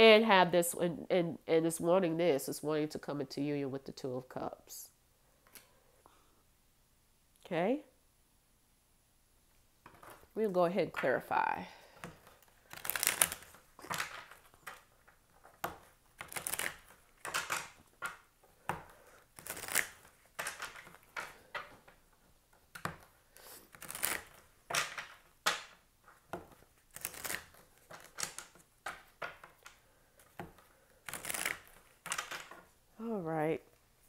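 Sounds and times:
cards being shuffled: 12.0s - 22.1s, 22.7s - 32.7s.

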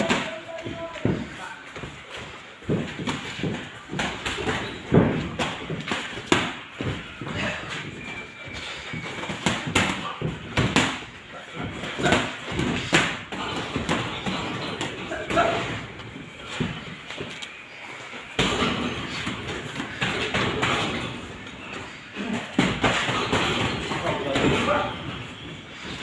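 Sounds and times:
boxing gloves smacking: 2.6s - 8.1s.

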